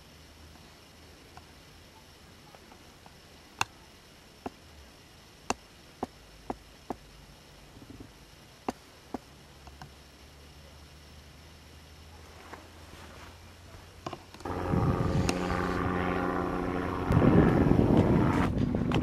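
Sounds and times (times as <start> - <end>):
faint low rumble: 0.0 - 19.0.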